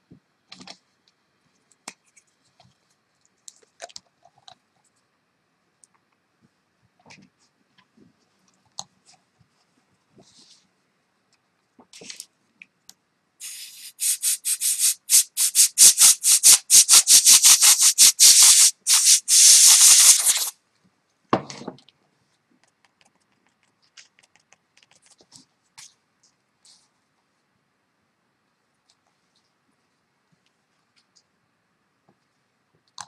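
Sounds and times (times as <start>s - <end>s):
rubbing strokes on paper: 13.4s - 20.5s.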